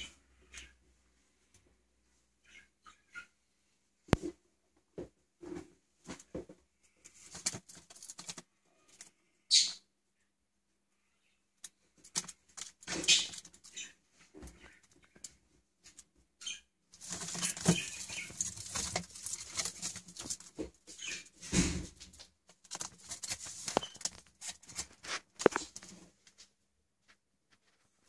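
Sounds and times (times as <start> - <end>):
paper rustling: 7.2 - 8.4, 17.0 - 26.4.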